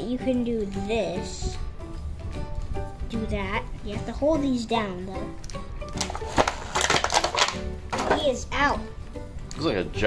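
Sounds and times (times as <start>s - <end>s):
background music: 0.0s - 10.0s
plastic toy clicks and snaps: 5.4s - 8.2s.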